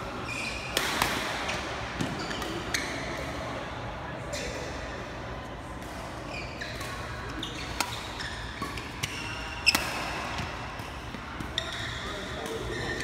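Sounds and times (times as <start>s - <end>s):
shoes squeaking on court: 0.2s - 0.9s, 1.5s - 3.3s, 6.2s - 13.0s
rackets striking shuttlecock: 5.8s - 12.8s.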